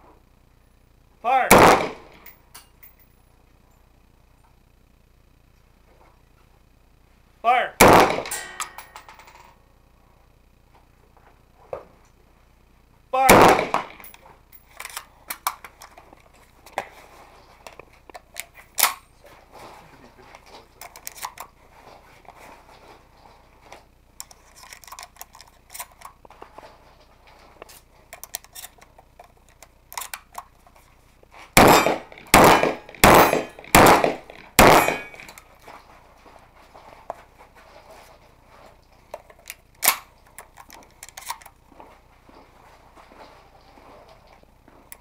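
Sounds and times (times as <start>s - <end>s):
shotgun shots: 1.5s - 2.3s, 7.8s - 8.8s, 13.2s - 14.1s, 31.6s - 35.3s
shotgun shells loading clicks: 13.5s - 16.1s, 17.7s - 19.0s, 20.8s - 21.6s, 24.2s - 26.2s, 27.6s - 30.6s, 31.6s - 35.5s, 39.1s - 41.6s.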